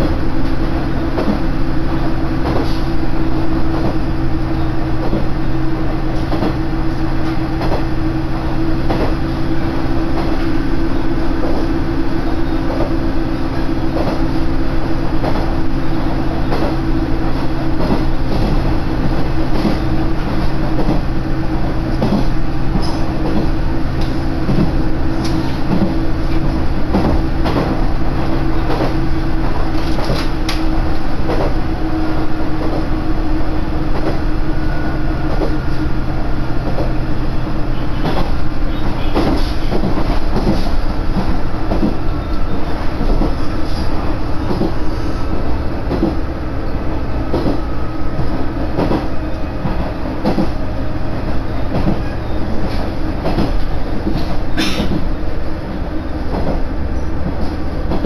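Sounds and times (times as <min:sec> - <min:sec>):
train drive hum: 0:00.0 - 0:58.0
train running noise: 0:00.0 - 0:58.0
wheels clacking over rail joints: 0:36.6 - 0:44.8.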